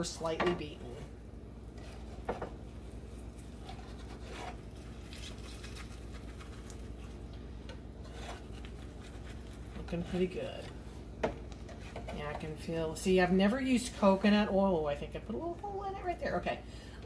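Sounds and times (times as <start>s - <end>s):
low steady hum: 0.0s - 17.0s
spatula scraping a pan: 1.7s - 2.6s, 3.5s - 4.7s, 8.0s - 10.4s, 11.6s - 12.4s.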